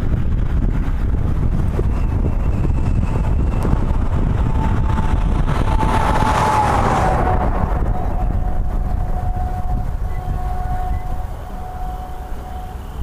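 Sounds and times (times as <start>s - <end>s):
passing truck rushing: 0.0s - 13.0s
road noise: 0.0s - 13.0s
wind buffeting microphone: 0.0s - 13.0s
faint steady tone: 7.8s - 13.0s.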